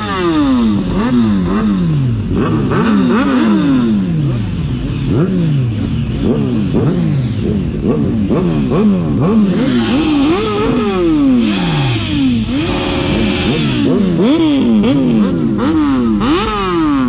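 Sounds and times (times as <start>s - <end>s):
motorbike engines revving: 0.0s - 17.0s.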